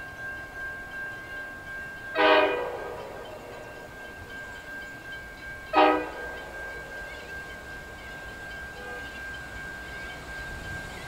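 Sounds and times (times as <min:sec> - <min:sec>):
locomotive horn blasts: 0:02.2 - 0:03.2, 0:05.7 - 0:06.4.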